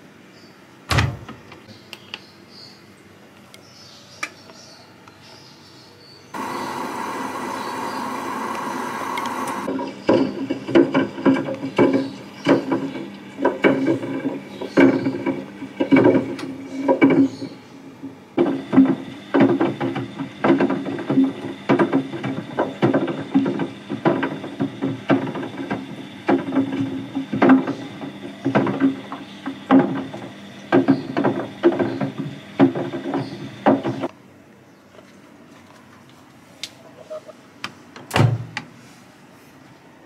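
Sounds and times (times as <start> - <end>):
washing machine hum: 6.4 - 34.1.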